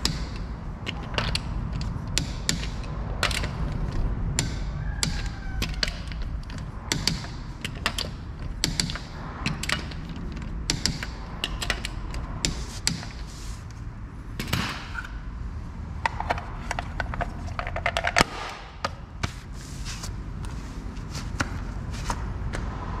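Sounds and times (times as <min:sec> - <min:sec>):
hand tools clicking and knocking: 0:00.0 - 0:13.4, 0:16.0 - 0:19.4.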